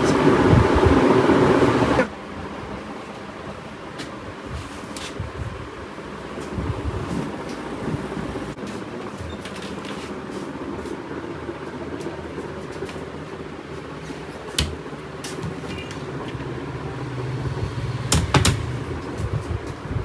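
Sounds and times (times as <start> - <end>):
steady background hum: 0.0 - 20.0
wooden cabinet doors opening and shutting: 18.0 - 18.8.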